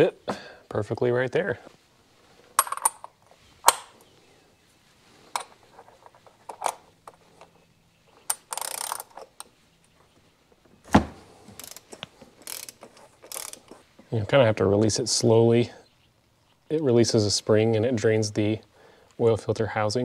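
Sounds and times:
ratchet clicking: 0:08.3 - 0:09.3, 0:11.5 - 0:13.8.

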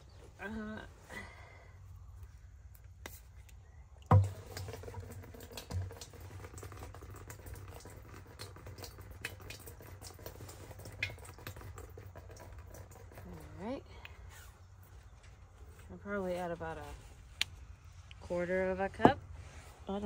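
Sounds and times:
liquid trickling into plastic jug: 0:04.0 - 0:13.8
plastic bottle knocks: 0:04.1 - 0:04.7.

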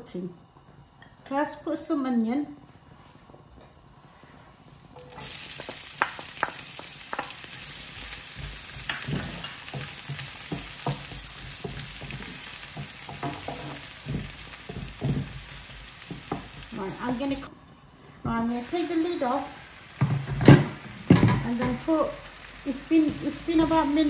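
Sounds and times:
onion sizzling in a frying pan: 0:05.0 - 0:24.0
spatula scraping a pan: 0:07.1 - 0:16.7.

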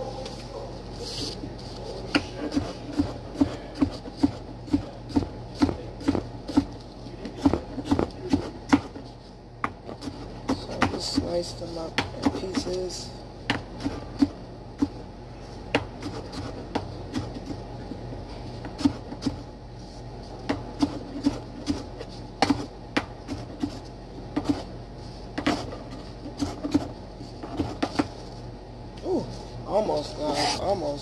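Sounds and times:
steady low hum: 0:00.0 - 0:31.0
knife chopping on cutting board: 0:02.1 - 0:06.7, 0:07.3 - 0:09.0.

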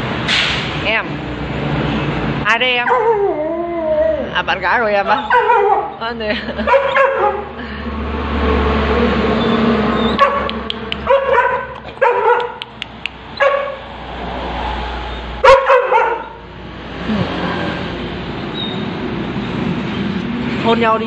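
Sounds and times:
dog giving high-pitched calls: 0:04.9 - 0:06.0, 0:09.4 - 0:13.8.

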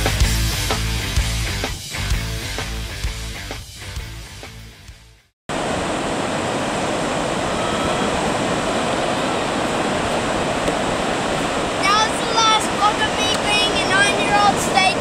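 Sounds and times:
rock music: 0:00.0 - 0:05.3
surf breaking on beach: 0:05.5 - 0:15.0.

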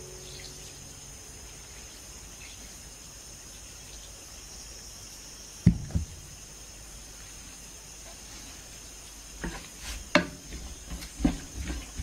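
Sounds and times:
insects chirring: 0:00.0 - 0:12.0
dull knocks: 0:05.6 - 0:06.2.

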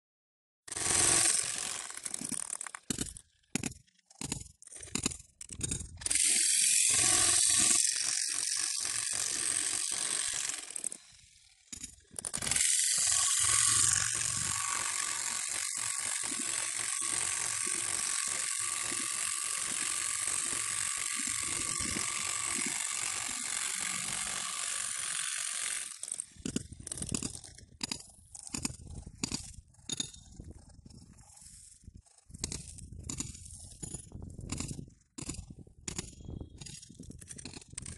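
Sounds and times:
demolition hammer breaking concrete: 0:11.7 - 0:30.2.

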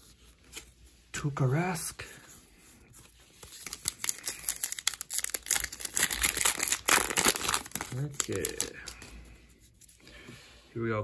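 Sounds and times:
foil wrapper crinkling and tearing: 0:03.4 - 0:09.0.

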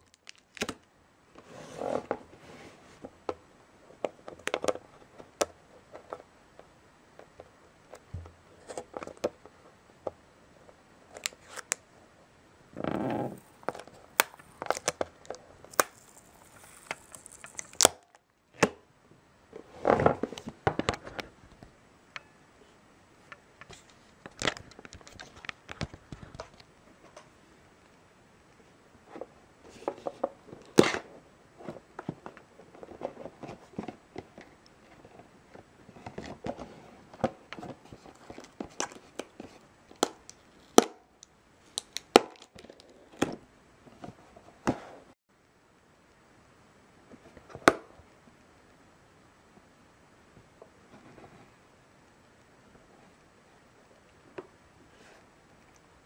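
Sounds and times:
plastic rustling scrapes: 0:01.4 - 0:03.0.

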